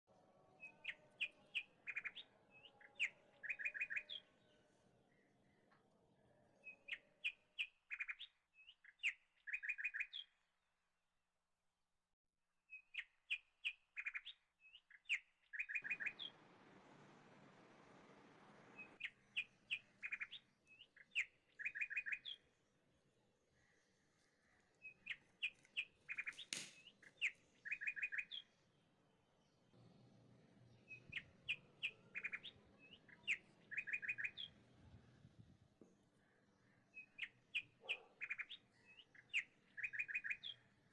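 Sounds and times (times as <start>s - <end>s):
small birds chirping: 0.5s - 10.5s, 12.7s - 17.7s, 18.4s - 40.9s.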